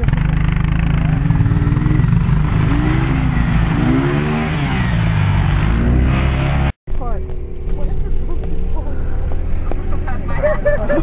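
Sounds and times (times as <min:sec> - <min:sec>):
atv engine revving: 0:00.0 - 0:11.0.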